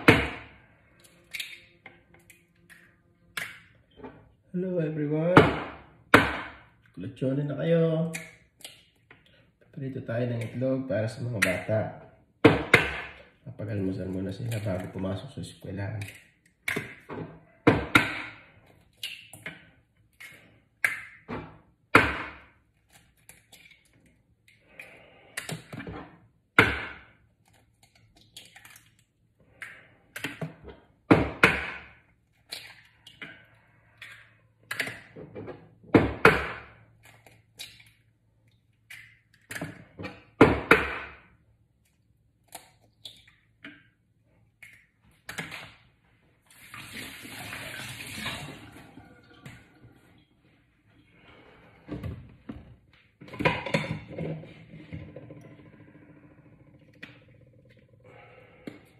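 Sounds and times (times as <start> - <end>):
eggs cracking against a bowl: 0.1 - 3.9, 8.0 - 35.2, 35.9 - 45.8.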